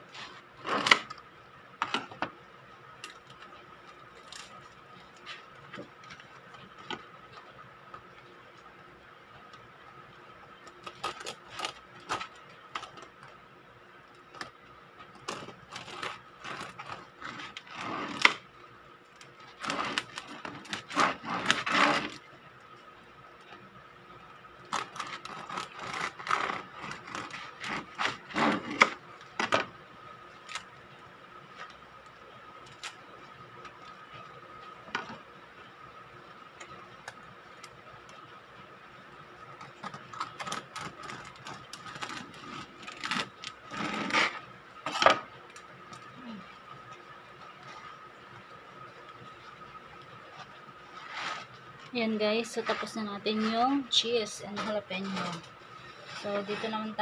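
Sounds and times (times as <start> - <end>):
bread knife sawing crusty loaf: 19.6 - 22.2, 24.8 - 28.9, 51.0 - 51.5.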